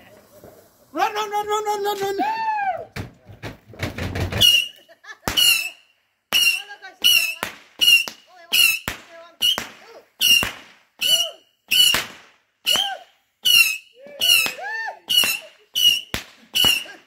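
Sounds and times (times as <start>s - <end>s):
firework repeater pops: 3.8s - 17.0s.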